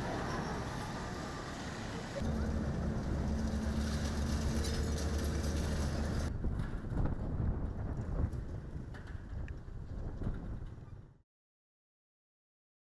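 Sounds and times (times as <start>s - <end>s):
excavator diesel engine running: 0.0s - 6.3s.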